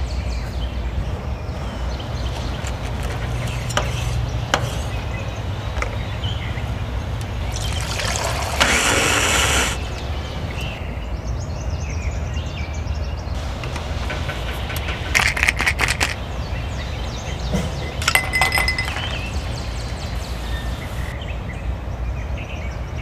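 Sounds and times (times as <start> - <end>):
liquid pouring into plastic cup: 7.3 - 10.0.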